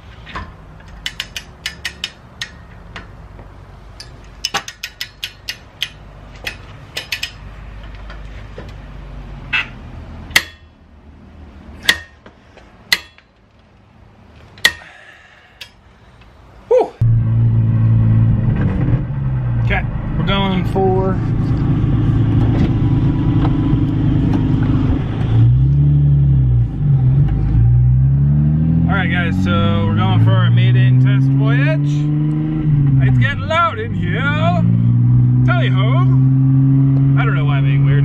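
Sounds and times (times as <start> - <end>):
wrench ratcheting metal clicks: 0.8 - 2.7, 4.0 - 7.4
low drone of car cabin driving: 5.7 - 14.6, 16.4 - 38.0.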